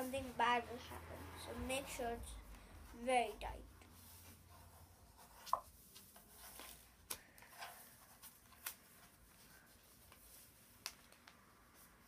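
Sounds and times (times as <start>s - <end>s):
paper rustling: 3.9s - 12.0s.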